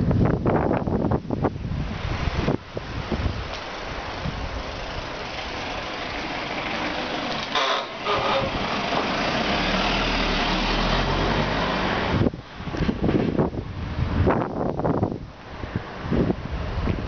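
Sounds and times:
wind and road noise: 0:00.0 - 0:17.0
van engine passing: 0:01.7 - 0:14.4
brief shrill sound: 0:07.5 - 0:08.5.

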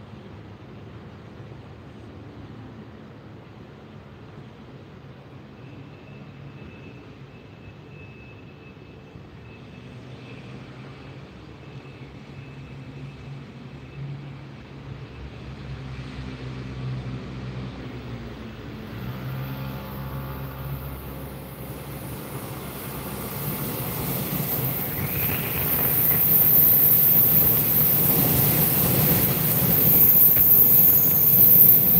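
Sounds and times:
train rumbling: 0:14.6 - 0:31.9.

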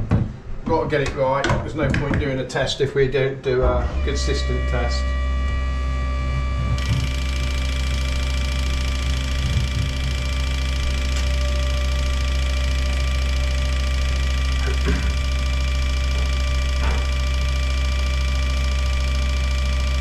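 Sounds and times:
machine hum: 0:02.8 - 0:20.0
fuel injectors hissing: 0:04.1 - 0:20.0.

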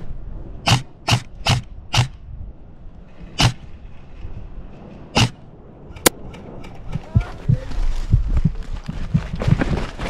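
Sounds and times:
airsoft gun shots: 0:00.6 - 0:02.2.

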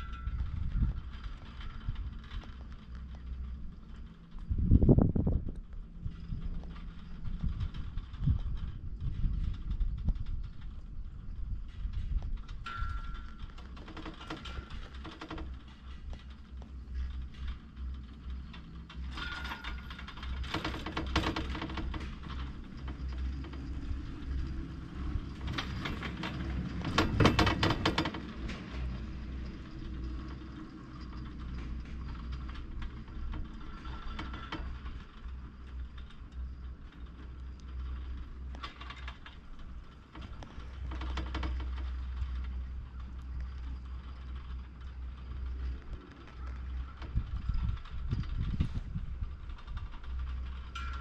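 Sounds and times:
steady low rumble: 0:00.0 - 0:51.0
chairlift chairs clattering: 0:11.8 - 0:51.0.

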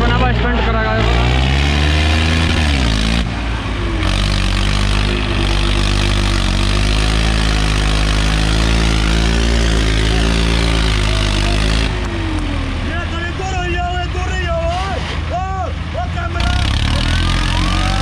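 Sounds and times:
tractor diesel engine running: 0:00.0 - 0:18.0.

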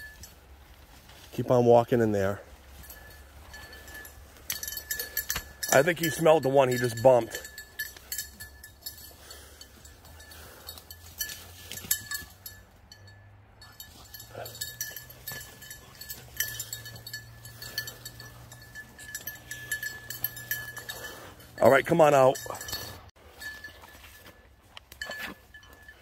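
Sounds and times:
dog collar bell jingling: 0:00.0 - 0:01.2, 0:01.8 - 0:26.0
rustling in brush: 0:00.0 - 0:05.7.

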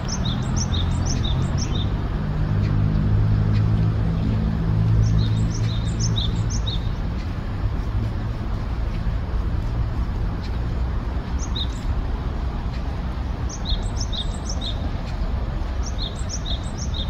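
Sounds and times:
great tit singing: 0:00.0 - 0:02.9, 0:04.9 - 0:07.4, 0:11.2 - 0:12.0, 0:12.6 - 0:17.0
steady low rumble: 0:00.0 - 0:17.0.

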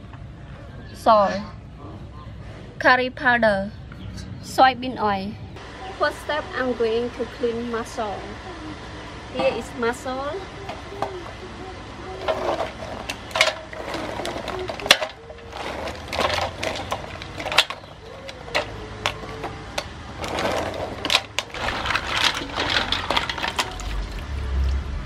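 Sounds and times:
mussel shells clicking: 0:12.2 - 0:24.8
water splashing and sloshing: 0:20.1 - 0:25.0.

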